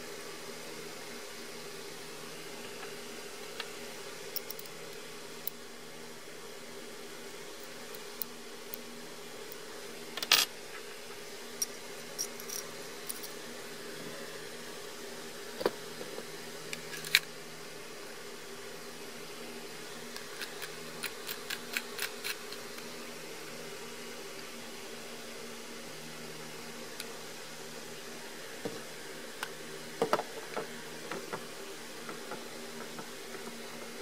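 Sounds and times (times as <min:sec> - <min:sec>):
steady low hum: 0:00.0 - 0:34.0
small metal parts clicking: 0:04.3 - 0:04.8.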